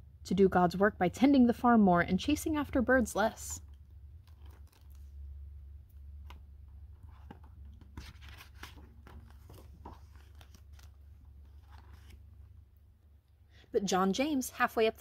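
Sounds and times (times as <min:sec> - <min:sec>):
low steady hum: 0:00.0 - 0:15.0
paper page rustling: 0:04.2 - 0:05.2, 0:06.2 - 0:12.5.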